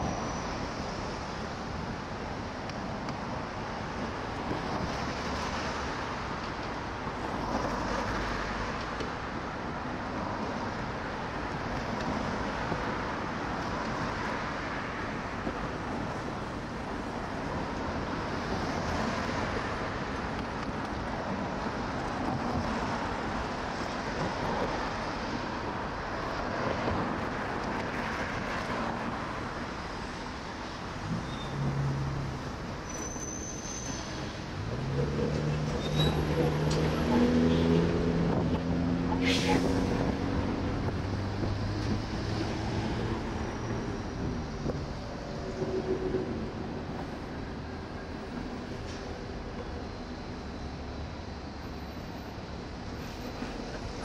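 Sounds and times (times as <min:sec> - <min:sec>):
cars passing: 0:00.0 - 0:54.0.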